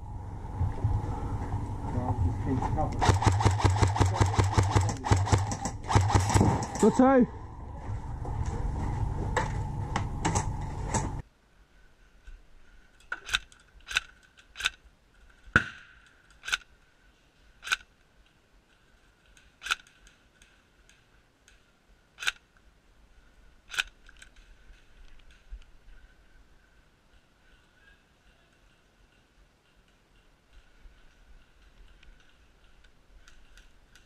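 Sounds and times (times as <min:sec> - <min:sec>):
faint high hum: 0:00.0 - 0:03.0, 0:06.8 - 0:11.2
airsoft rifle shots: 0:03.0 - 0:07.1.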